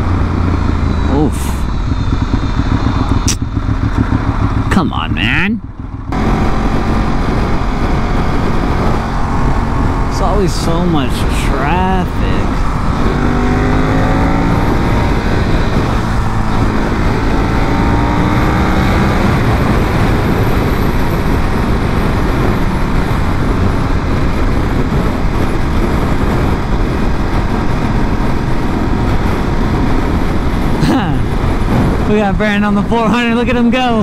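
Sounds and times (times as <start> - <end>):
motorcycle engine: 0.0 - 34.0
wind and road noise: 0.0 - 34.0.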